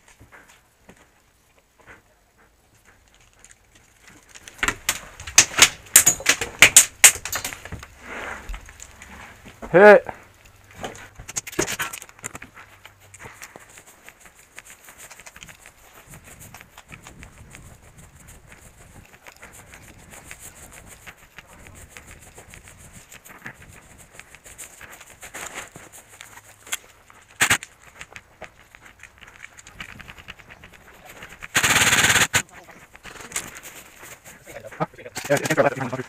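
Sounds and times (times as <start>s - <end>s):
sharp crack: 4.3s - 8.0s, 27.3s - 27.8s, 31.4s - 33.5s
footsteps in dry grass: 7.6s - 36.0s.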